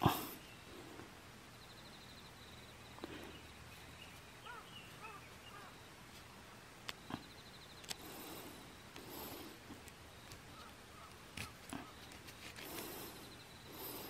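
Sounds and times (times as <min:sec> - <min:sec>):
bird chirping: 0:00.3 - 0:06.0, 0:06.9 - 0:12.2
faint high insect trill: 0:01.4 - 0:06.0, 0:07.0 - 0:09.5.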